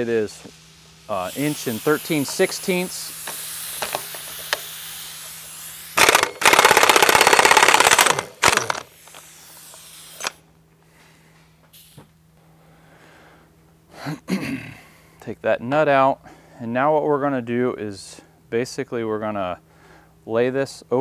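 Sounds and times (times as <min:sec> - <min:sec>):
air impact wrench hammering: 0:00.0 - 0:10.4.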